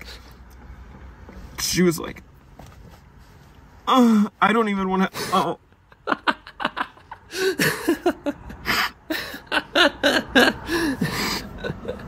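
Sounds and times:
man laughing hard: 5.2s - 12.0s.

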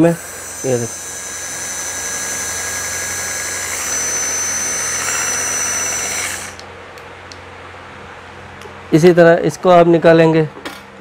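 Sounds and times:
handheld egg beater motor whining: 0.0s - 6.6s.

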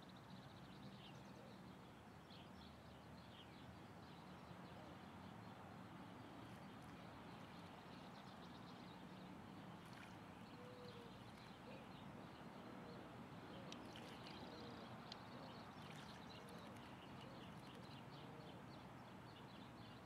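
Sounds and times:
bird splashing in birdbath: 9.8s - 10.2s, 13.8s - 14.4s, 15.8s - 16.8s.

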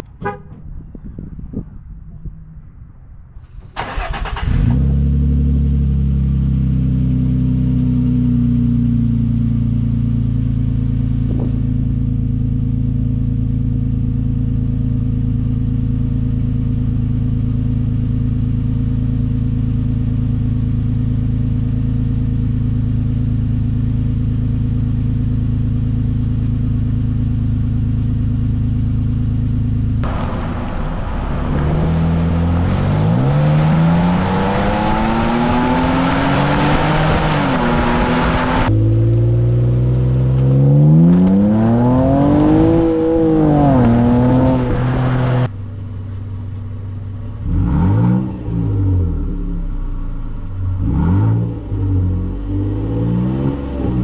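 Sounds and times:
truck accelerating hard: 3.5s - 8.8s, 30.0s - 45.6s, 47.3s - 54.0s
truck engine idling: 45.5s - 47.4s.

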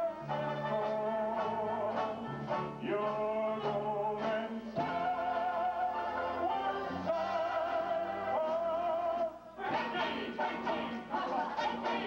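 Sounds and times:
banjo band music: 0.0s - 8.7s.

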